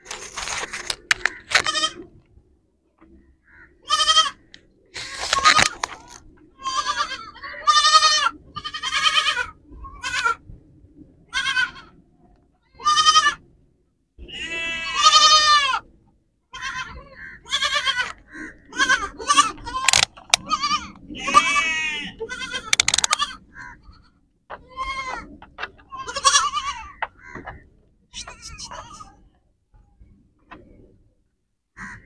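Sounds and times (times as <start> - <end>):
young goats bleating: 1.2 - 2.1, 3.4 - 10.4, 11.3 - 12.0, 12.6 - 13.4, 14.2 - 15.9, 16.5 - 29.3.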